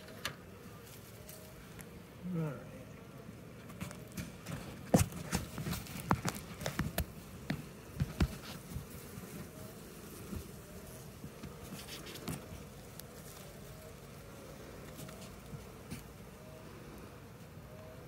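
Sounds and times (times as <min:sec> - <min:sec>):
bees buzzing faintly: 0:00.0 - 0:18.0
wooden hive frames clicking: 0:03.6 - 0:16.4.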